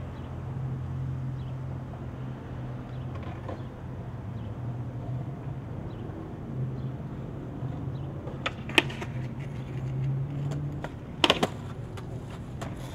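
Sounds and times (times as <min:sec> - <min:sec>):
cars passing: 0:00.0 - 0:12.9.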